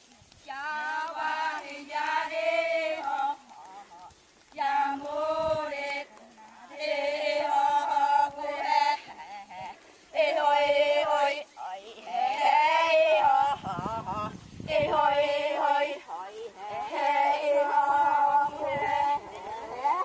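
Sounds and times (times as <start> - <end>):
voices chanting in held notes: 0.4 - 20.0.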